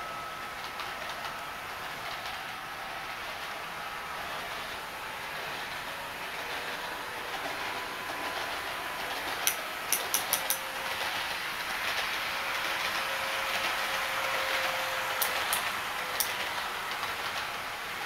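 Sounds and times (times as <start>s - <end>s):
model train motor humming tones: 0.0s - 18.0s
model train rolling rumble: 0.0s - 18.0s
sharp clicks: 9.4s - 10.6s.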